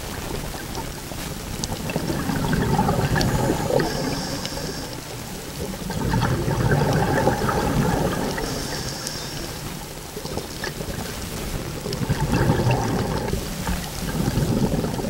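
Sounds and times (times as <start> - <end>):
underwater bubbles gurgling: 0.0 - 15.0
faint clicks: 0.4 - 2.0, 8.2 - 15.0.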